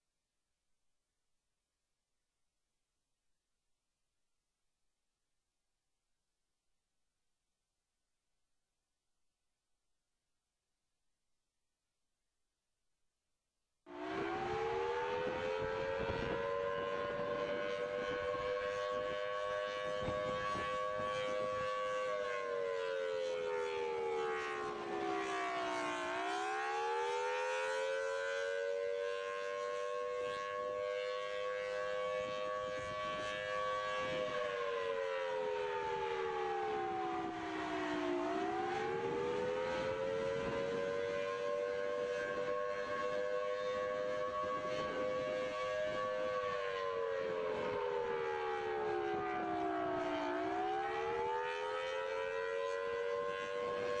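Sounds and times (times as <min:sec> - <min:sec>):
warning siren wailing: 0:13.9 - 0:54.0.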